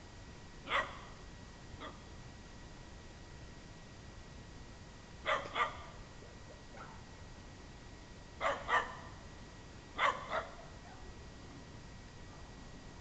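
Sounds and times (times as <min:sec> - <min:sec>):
small dog barking: 0:00.6 - 0:01.2, 0:01.8 - 0:02.0, 0:05.2 - 0:07.1, 0:08.4 - 0:09.2, 0:10.0 - 0:11.2.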